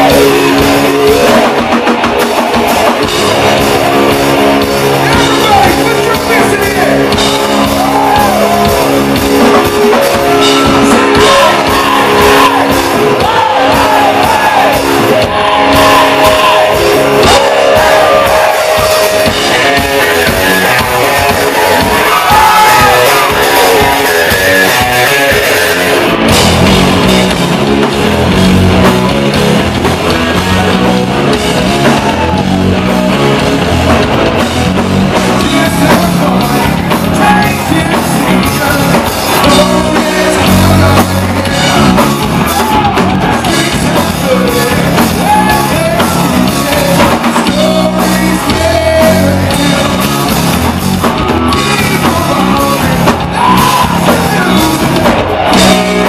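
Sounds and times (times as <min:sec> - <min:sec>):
man singing: 0:00.0 - 0:01.9, 0:04.9 - 0:26.1, 0:35.2 - 0:56.0
bass guitar: 0:00.0 - 0:56.0
drums: 0:00.0 - 0:56.0
electric guitars: 0:00.0 - 0:56.0.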